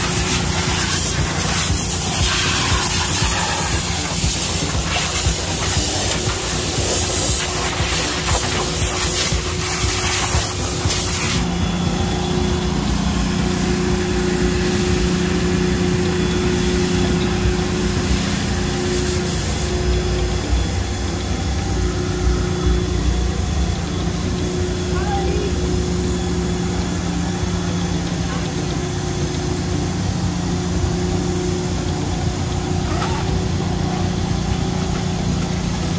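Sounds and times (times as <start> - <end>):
water spraying with hiss: 0.0 - 11.5, 16.5 - 20.0
vacuum running: 0.0 - 35.9.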